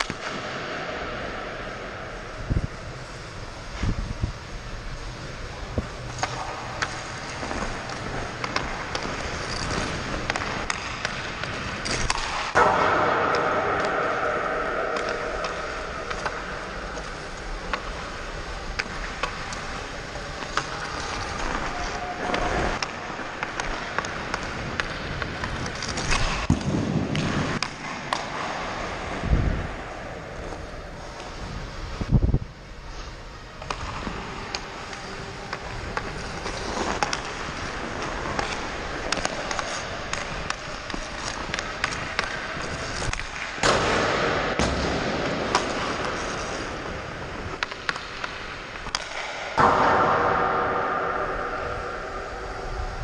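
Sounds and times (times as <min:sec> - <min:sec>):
skates scraping ice: 0:00.0 - 0:53.0
stick clicking on puck: 0:06.1 - 0:18.1, 0:33.6 - 0:44.8, 0:47.4 - 0:50.1
loud crack with ringing: 0:07.6 - 0:19.4, 0:48.9 - 0:52.7.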